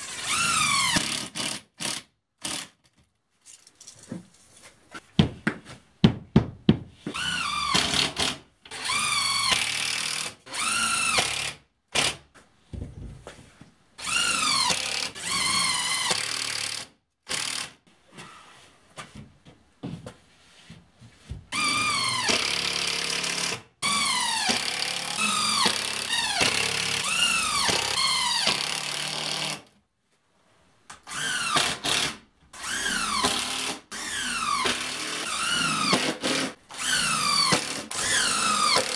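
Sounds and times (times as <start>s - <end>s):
cordless drill driving screws: 31.1s - 38.9s.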